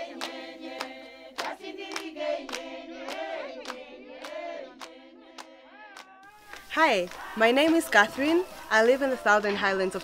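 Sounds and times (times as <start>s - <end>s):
group singing in chorus: 0.0s - 10.0s
hand clapping: 0.1s - 7.2s.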